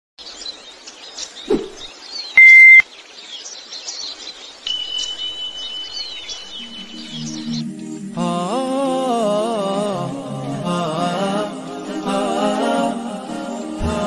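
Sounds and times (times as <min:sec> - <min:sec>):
birds chirping: 0:00.2 - 0:08.0
loud short beep: 0:02.4 - 0:02.8
steady high tone: 0:02.4 - 0:02.8.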